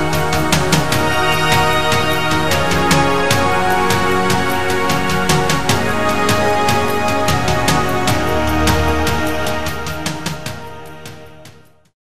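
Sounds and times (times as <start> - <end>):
music with steady beat: 0.0 - 11.9.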